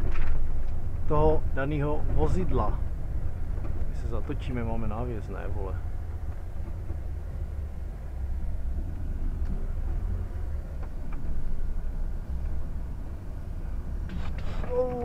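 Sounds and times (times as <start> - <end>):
truck diesel engine rumbling: 0.0 - 15.0.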